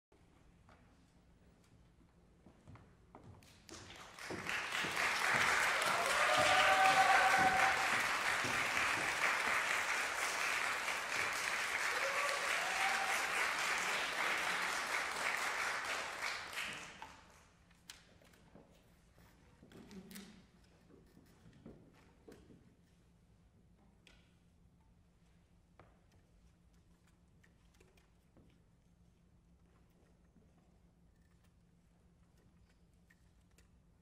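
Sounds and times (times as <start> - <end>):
audience applauding: 3.7 - 17.4.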